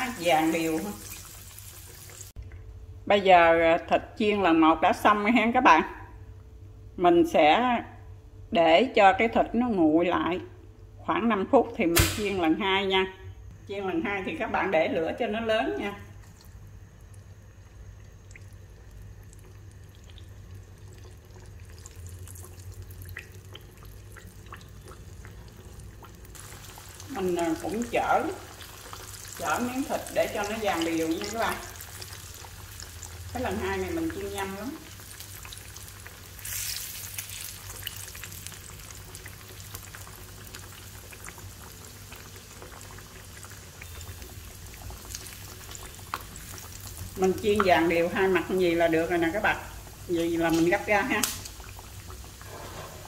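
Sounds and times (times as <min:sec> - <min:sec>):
meat sizzling in hot oil: 0:00.0 - 0:02.4, 0:17.9 - 0:53.0
spitting oil pops and crackles: 0:12.0 - 0:12.4, 0:35.2 - 0:47.9, 0:50.1 - 0:52.4.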